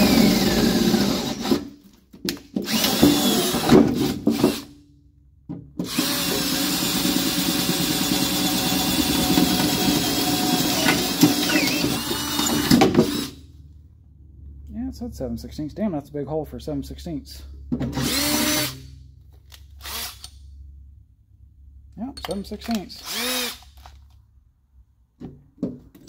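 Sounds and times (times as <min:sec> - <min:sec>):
electric drill drilling aluminum: 0:00.0 - 0:01.7, 0:02.6 - 0:04.7, 0:05.9 - 0:13.4, 0:18.0 - 0:18.9, 0:19.8 - 0:20.3, 0:23.0 - 0:23.9.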